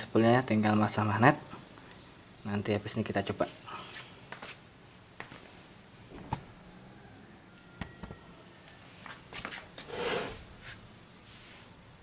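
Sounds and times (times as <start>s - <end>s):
rustling scrape: 9.4s - 11.7s.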